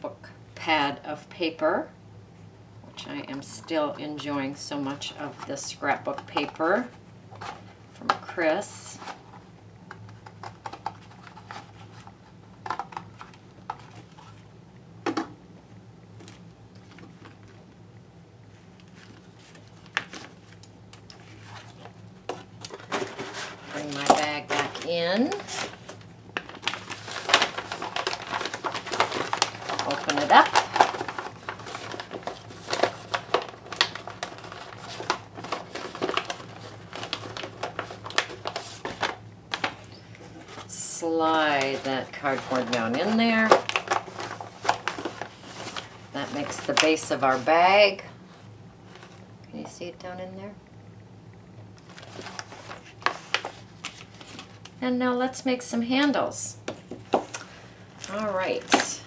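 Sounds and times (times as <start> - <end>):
steady low hum: 0.0 - 59.0
stiff paper crinkling and rustling: 10.0 - 14.4, 18.5 - 49.3, 51.8 - 54.8.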